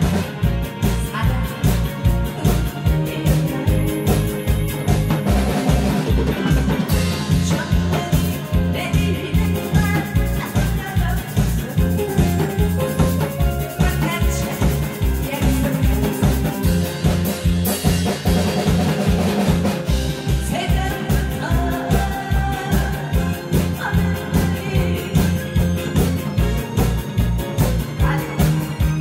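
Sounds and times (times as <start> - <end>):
amplified music with drum beat: 0.0 - 29.0
woman singing into microphone: 0.8 - 4.9, 6.4 - 12.8, 13.7 - 16.7, 20.4 - 26.0, 27.9 - 29.0.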